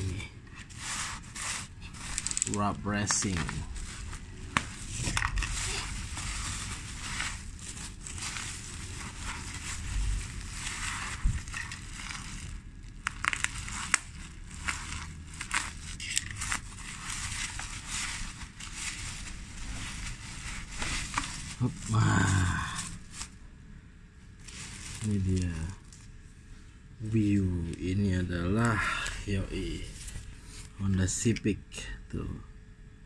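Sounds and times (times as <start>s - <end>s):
bubble wrap crinkling: 0.0s - 23.4s, 24.3s - 26.2s
knife cutting bubble wrap: 0.0s - 23.4s.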